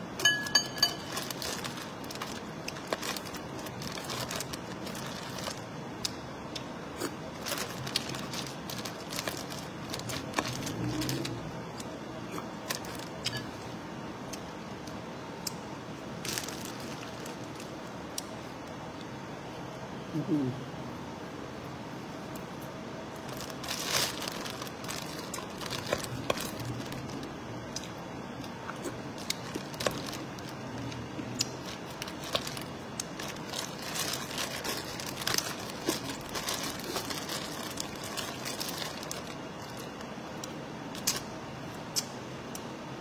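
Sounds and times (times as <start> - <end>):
plastic bag crinkling: 0.2 - 5.8, 7.3 - 11.5, 12.6 - 13.4, 16.2 - 17.9, 23.2 - 28.0, 28.8 - 40.1.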